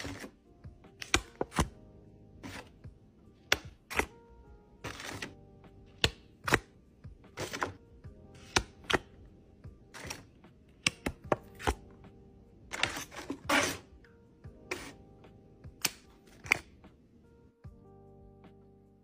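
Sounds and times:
packaging taps and clicks: 0.9 - 1.7, 3.4 - 4.1, 10.8 - 11.8.

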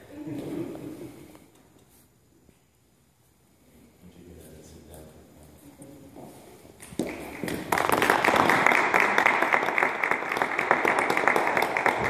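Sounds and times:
congregation applauding: 7.0 - 12.0.

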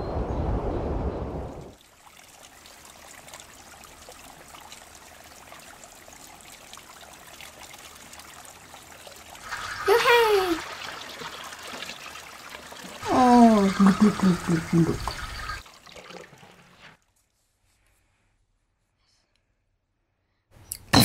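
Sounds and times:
water trickling: 1.5 - 17.1
child calling: 9.8 - 10.6, 13.0 - 14.8.

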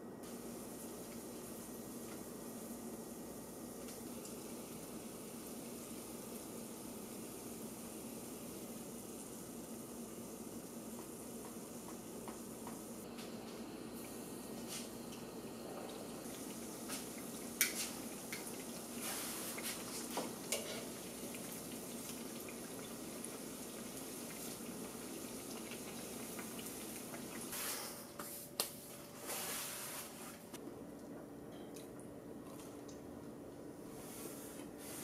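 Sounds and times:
faint steady hum: 0.0 - 29.2
oil sizzling and crackling: 0.2 - 27.9.

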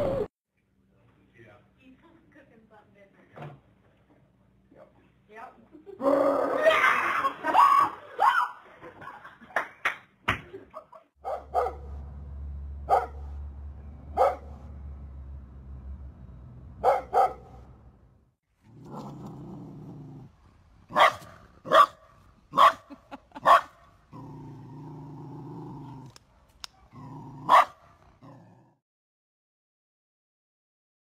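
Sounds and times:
dogs barking: 11.2 - 12.0, 12.8 - 13.4, 14.1 - 14.7, 16.8 - 17.7, 20.9 - 23.8, 26.7 - 27.9
dog growling: 18.6 - 21.0, 24.1 - 26.2, 26.9 - 28.8.

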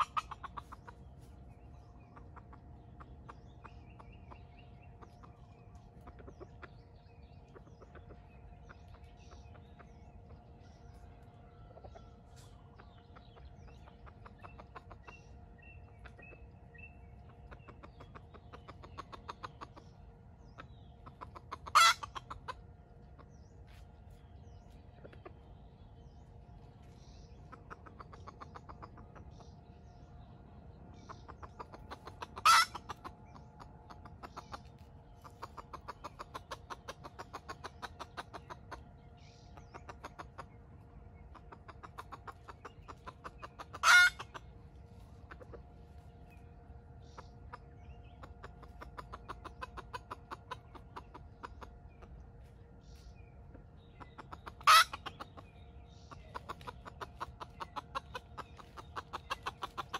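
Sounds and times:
steady high hum: 0.0 - 59.9
junglefowl calling: 21.2 - 22.6, 31.1 - 33.2, 41.4 - 44.5, 54.2 - 55.4.

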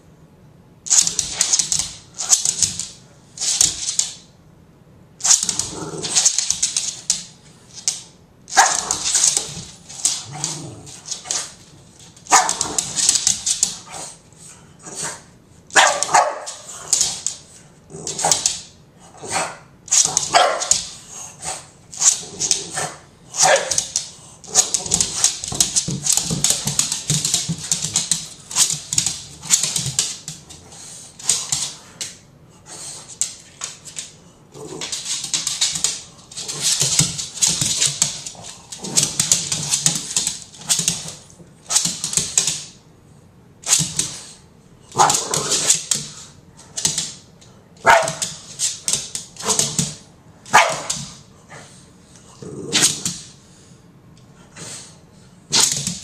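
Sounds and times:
dog barking: 12.3 - 12.6, 15.8 - 16.6, 20.3 - 20.7, 23.4 - 23.7, 47.8 - 48.2, 50.5 - 50.9.

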